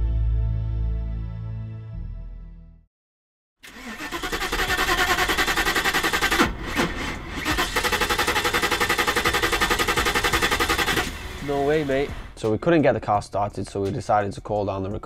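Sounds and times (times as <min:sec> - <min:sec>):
starter motor cranking engine: 0:03.6 - 0:12.4.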